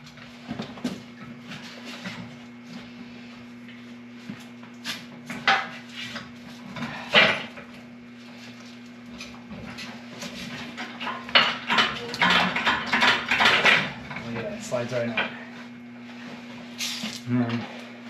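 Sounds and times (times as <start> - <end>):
metal clanks and scrapes: 9.2 - 15.5.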